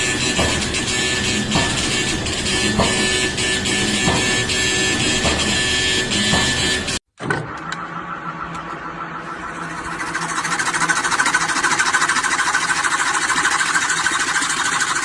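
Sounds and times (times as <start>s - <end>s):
lathe humming: 0.0s - 7.0s, 7.6s - 15.0s
turning tool scraping wood: 9.3s - 15.0s.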